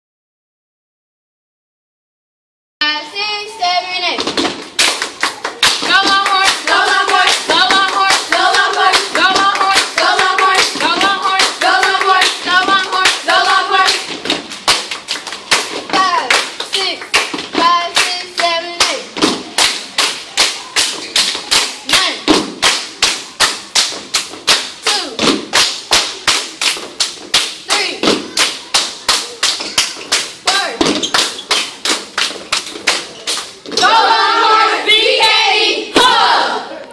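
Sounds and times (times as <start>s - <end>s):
girls clapping hands: 4.6s - 22.0s, 25.5s - 33.6s
girls chanting together: 5.2s - 14.8s, 15.5s - 23.9s, 33.7s - 36.9s.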